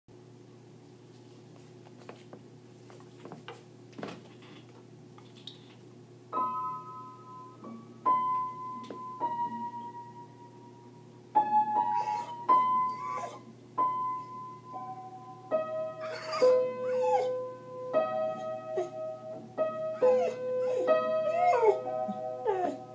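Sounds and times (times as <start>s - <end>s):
slow piano melody: 6.3s - 22.9s
dog vocalising: 12.0s - 13.5s, 16.0s - 17.3s, 20.0s - 21.8s.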